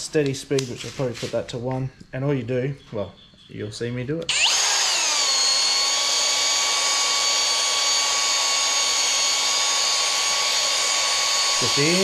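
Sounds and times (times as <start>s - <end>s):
cordless drill whine: 4.3s - 12.0s.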